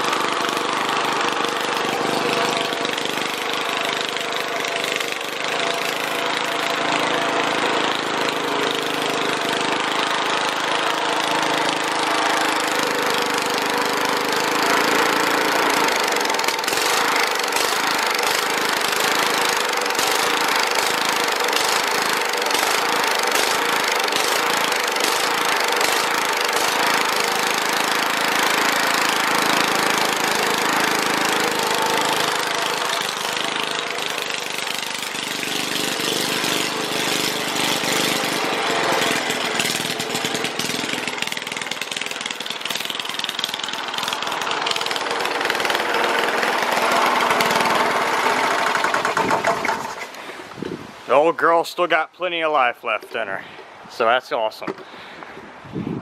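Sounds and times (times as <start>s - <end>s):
lawn mower engine running loud: 0.0s - 50.6s.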